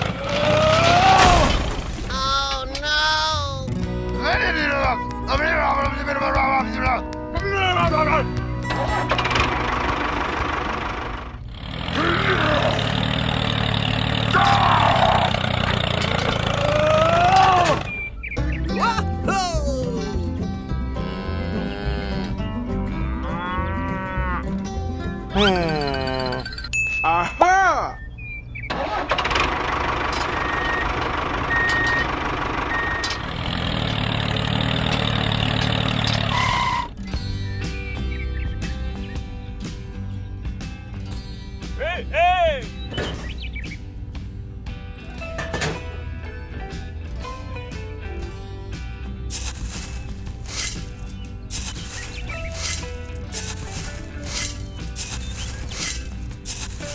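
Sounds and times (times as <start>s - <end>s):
tractor engine running: 0.0s - 7.3s, 7.9s - 18.6s, 28.6s - 38.0s, 48.7s - 56.9s
reversing alarm beeping: 30.4s - 33.3s
squealing tones: 35.7s - 37.0s.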